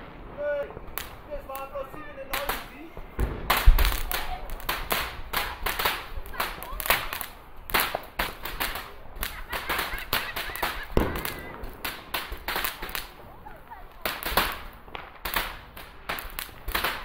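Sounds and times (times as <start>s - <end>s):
fireworks boom: 0.0s - 13.3s
fireworks crackling: 0.0s - 17.0s.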